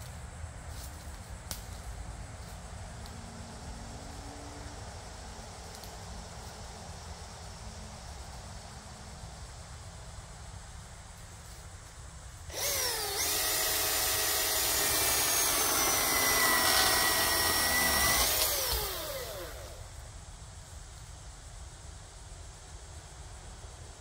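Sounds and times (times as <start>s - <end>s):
electric chainsaw cutting wood: 12.5s - 19.9s.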